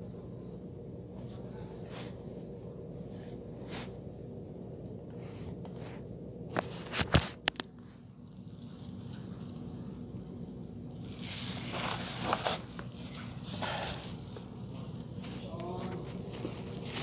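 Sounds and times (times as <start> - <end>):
steady low hum: 0.0 - 17.0
rustling: 5.1 - 17.0.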